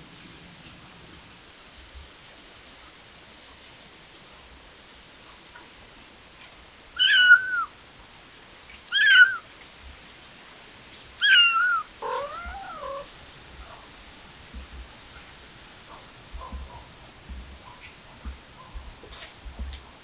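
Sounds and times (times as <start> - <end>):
kitten meowing: 7.0 - 7.7, 8.9 - 9.4, 11.2 - 13.1
lower quieter cat call: 7.0 - 7.8, 8.9 - 9.5, 11.2 - 13.9.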